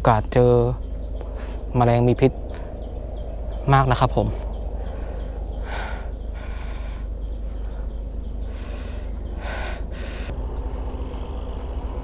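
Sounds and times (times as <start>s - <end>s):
steady low rumble: 0.0s - 12.0s
person breathing: 4.8s - 10.4s.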